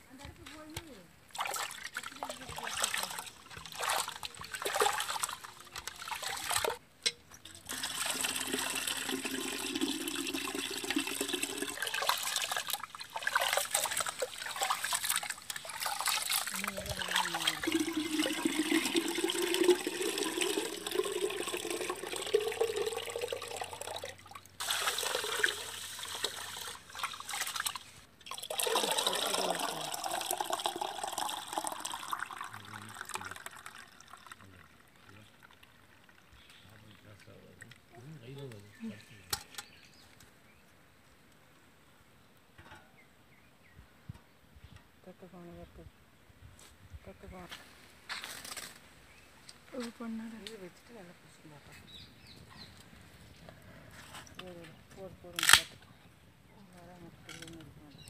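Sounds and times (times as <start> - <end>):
water pouring into a metal pot: 1.4 - 36.4.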